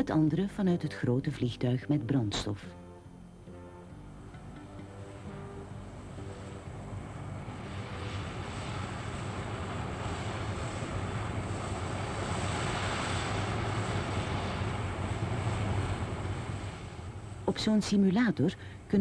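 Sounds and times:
jet aircraft engine rushing: 0:04.1 - 0:19.0.

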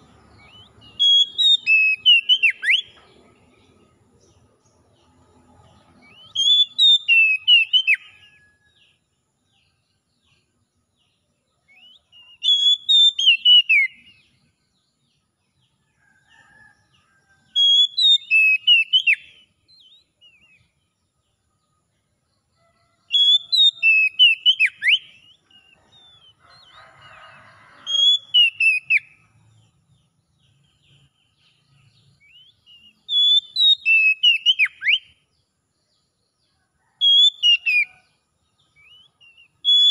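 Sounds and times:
bird singing whistled phrases: 0:00.4 - 0:02.9, 0:06.1 - 0:08.4, 0:11.7 - 0:14.1, 0:17.6 - 0:20.6, 0:23.1 - 0:25.4, 0:27.9 - 0:29.1, 0:32.3 - 0:35.2, 0:37.0 - 0:37.9, 0:38.8 - 0:39.9.

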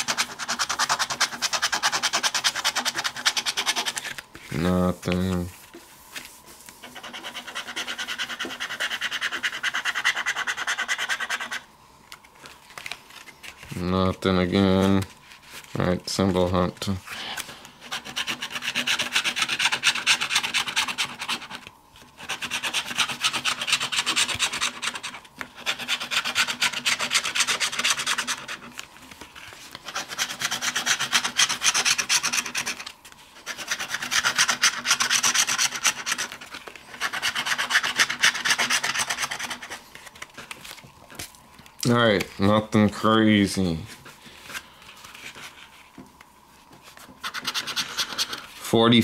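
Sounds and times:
scratching lottery ticket coating: 0:00.0 - 0:05.5, 0:06.8 - 0:11.7, 0:17.9 - 0:21.6, 0:22.2 - 0:28.8, 0:29.8 - 0:39.8, 0:47.2 - 0:48.4.

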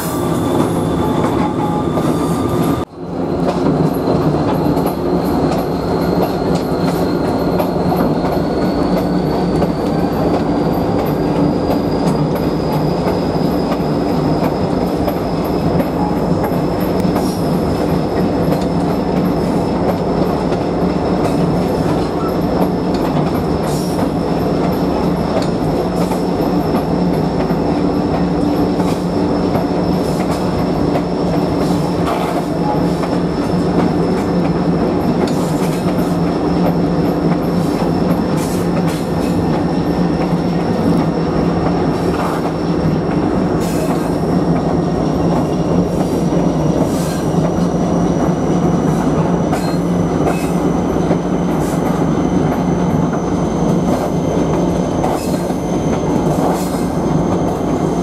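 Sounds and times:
train rumbling along track: 0:00.0 - 0:58.0
clicks over the rails: 0:18.2 - 0:46.2.

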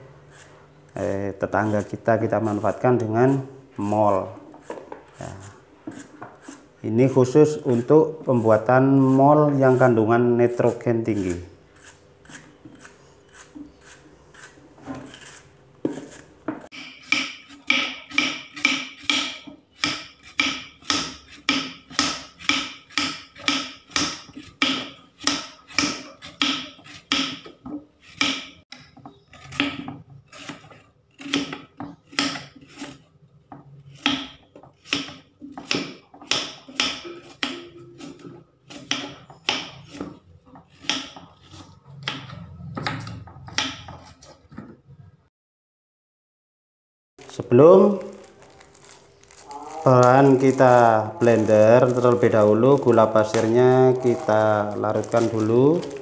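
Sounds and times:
knife cutting on wooden board: 0:04.6 - 0:06.7, 0:10.5 - 0:19.2, 0:34.0 - 0:44.4.

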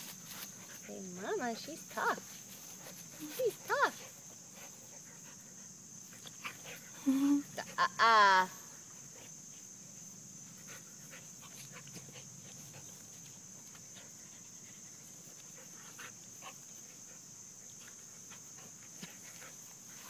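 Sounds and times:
dogs scuffing and breathing: 0:00.0 - 0:07.0
steady high hiss: 0:00.0 - 0:20.0.

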